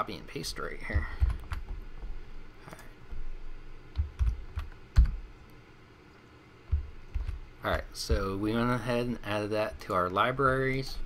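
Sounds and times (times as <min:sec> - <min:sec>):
computer keyboard typing: 0:00.9 - 0:01.8, 0:03.9 - 0:05.2, 0:06.7 - 0:08.3.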